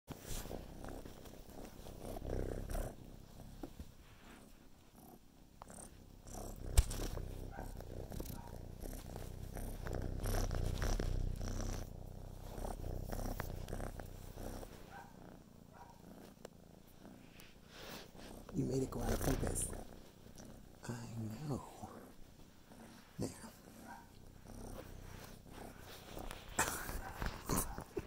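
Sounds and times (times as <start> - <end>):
kitten purring: 0.1 - 28.0.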